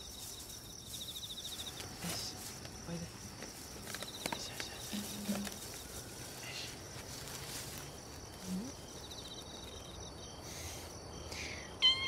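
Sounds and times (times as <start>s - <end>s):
night insects chirping: 0.0s - 12.0s.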